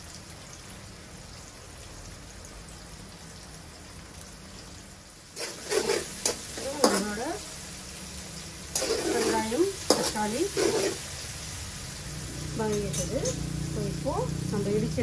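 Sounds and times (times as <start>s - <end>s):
onions sizzling in a wok: 0.0s - 15.0s
metal spatula scraping a pan: 5.4s - 7.5s, 8.6s - 11.2s, 12.6s - 13.5s.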